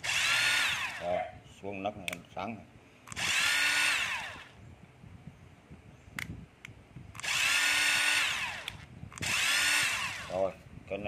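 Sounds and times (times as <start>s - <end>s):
cordless drill motor whining: 0.0s - 1.1s, 3.1s - 4.6s, 7.2s - 10.6s
single click: 6.2s - 7.3s.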